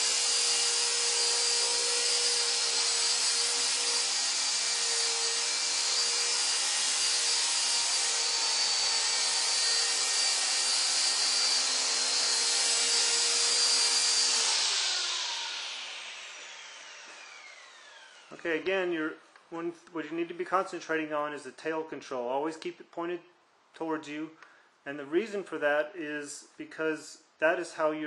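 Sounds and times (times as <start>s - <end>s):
rc helicopter motor whine and rotor: 0.0s - 18.3s.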